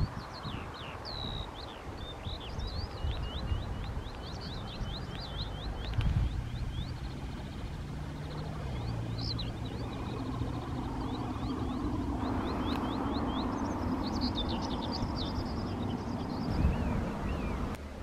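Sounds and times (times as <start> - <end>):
low rumble of road traffic: 0.0 - 18.0
small songbirds chirping: 0.0 - 18.0
vehicle passing: 4.3 - 18.0.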